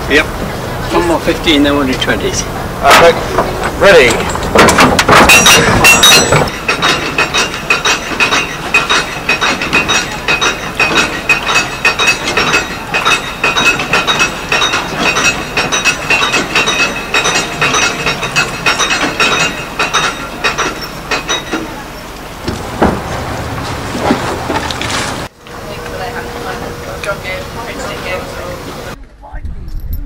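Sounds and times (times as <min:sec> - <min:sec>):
windlass pawl clicking on ratchet: 0:03.3 - 0:21.7.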